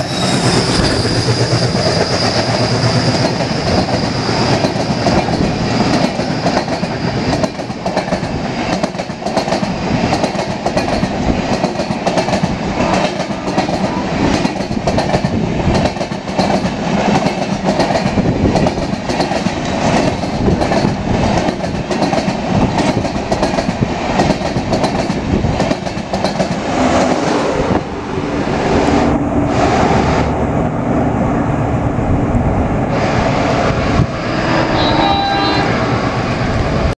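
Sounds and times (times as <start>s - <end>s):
train rumble: 0.0s - 37.0s
train wheels clattering over rail joints: 0.1s - 27.6s.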